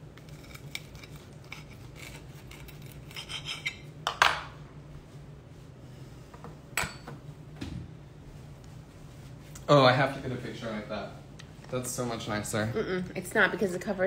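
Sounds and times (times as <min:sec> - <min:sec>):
knife scraping ceramic plate: 0:00.2 - 0:03.9.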